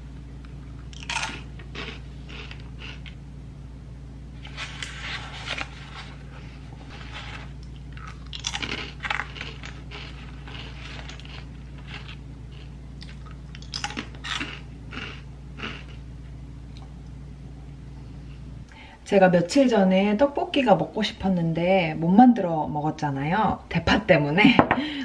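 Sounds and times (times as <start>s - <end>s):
crisp snack crunching: 0.8s - 3.2s, 6.9s - 16.0s.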